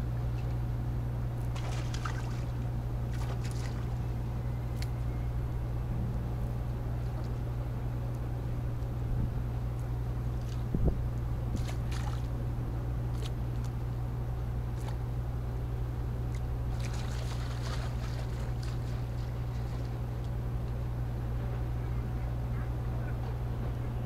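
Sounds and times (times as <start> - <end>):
steady low hum: 0.0 - 24.0
water lapping: 1.5 - 4.1, 11.5 - 12.3, 16.3 - 20.2.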